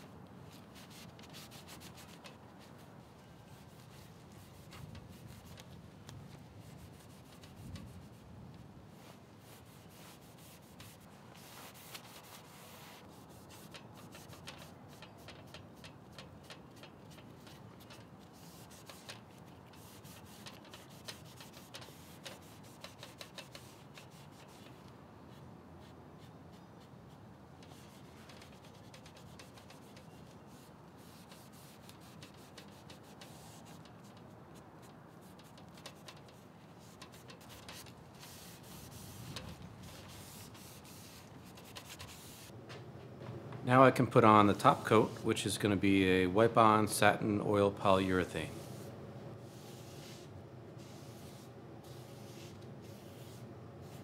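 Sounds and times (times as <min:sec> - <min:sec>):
scratchy rubbing on wood: 0:17.9 - 0:24.6, 0:35.3 - 0:42.5.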